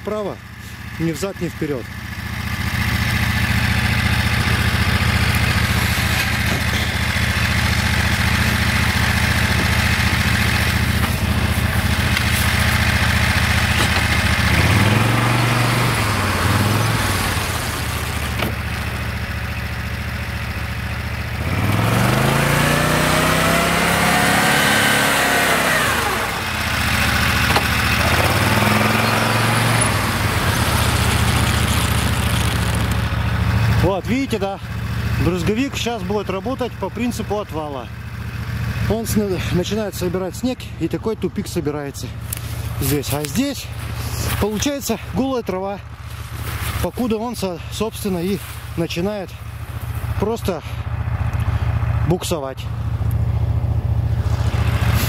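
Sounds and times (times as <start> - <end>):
snowmobile engine revving: 1.1 - 19.1, 21.3 - 37.8, 42.3 - 50.8, 53.8 - 55.0.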